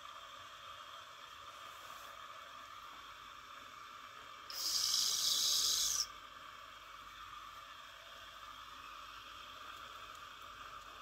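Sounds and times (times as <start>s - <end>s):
steam hissing from a valve: 4.4s - 6.2s.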